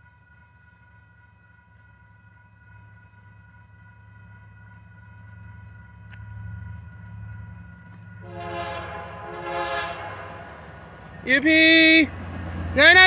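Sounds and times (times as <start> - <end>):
diesel locomotive engine rumble: 0.0 - 13.0.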